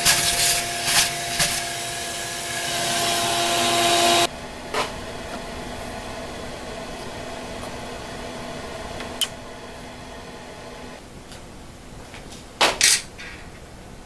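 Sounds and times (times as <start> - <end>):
vacuum suction hiss: 0.0 - 11.0
machine fan hum: 0.0 - 12.0.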